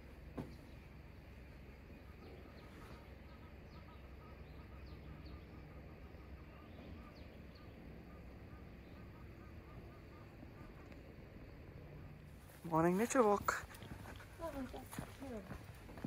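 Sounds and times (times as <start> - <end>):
low steady rumble: 0.0 - 16.0
faint bird chirps: 0.4 - 11.7.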